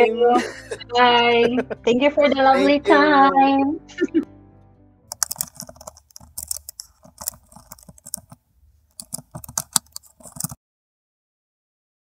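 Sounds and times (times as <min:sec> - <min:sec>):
keyboard key clicks: 0:05.1 - 0:10.6.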